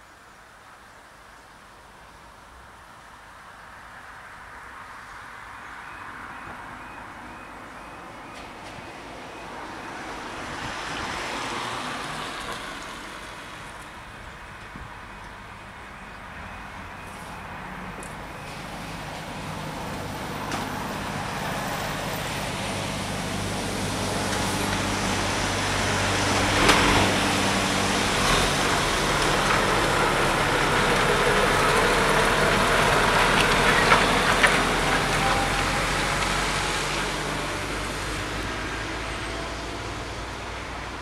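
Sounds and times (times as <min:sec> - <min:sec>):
lorry driving past on wet road: 0:09.0 - 0:13.9, 0:17.2 - 0:41.0.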